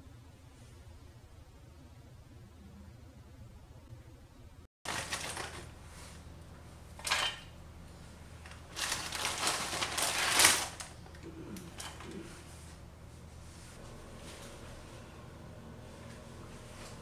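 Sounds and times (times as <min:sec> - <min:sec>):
rustling handling noises: 0:04.9 - 0:15.1.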